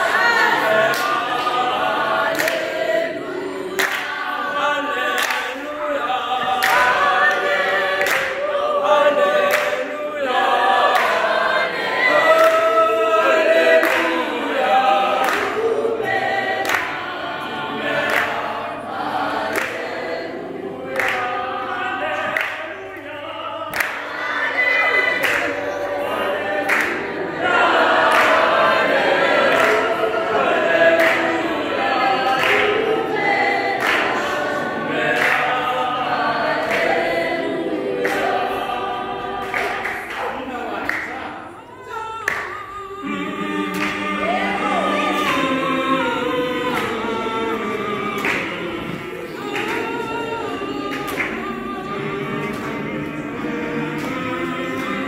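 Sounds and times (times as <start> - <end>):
teenagers singing a cappella: 0.0 - 55.0
sharp hand claps: 2.3 - 2.8, 3.8 - 4.3, 5.1 - 5.6, 6.4 - 8.5, 9.4 - 9.9, 13.8 - 14.2, 16.6 - 17.0, 18.0 - 18.4, 19.4 - 20.0, 20.9 - 21.4, 22.2 - 22.7, 23.7 - 24.1, 25.2 - 25.6, 26.6 - 27.1, 28.0 - 30.0, 30.9 - 31.3, 32.2 - 32.8, 33.8 - 34.3, 35.1 - 35.6, 38.0 - 38.4, 39.4 - 41.2, 42.3 - 42.6, 43.7 - 44.0, 48.2 - 48.6, 49.4 - 50.0, 50.9 - 51.6.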